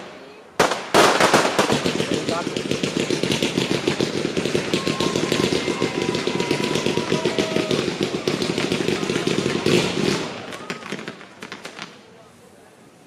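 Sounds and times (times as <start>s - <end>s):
fireworks crackling: 0.0s - 13.0s
faint firework whistling: 1.9s - 12.1s.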